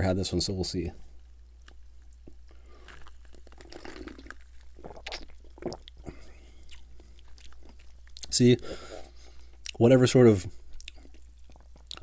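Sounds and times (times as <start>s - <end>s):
wet mouth clicks and gulps: 1.6s - 8.3s, 10.7s - 12.0s.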